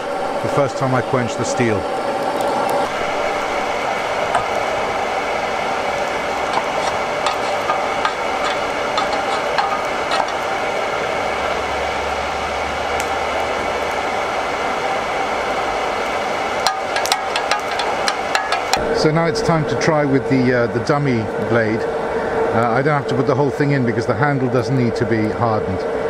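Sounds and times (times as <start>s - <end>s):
steady rushing hiss: 0.0s - 26.0s
oil crackling and popping: 1.6s - 11.8s, 12.9s - 18.8s.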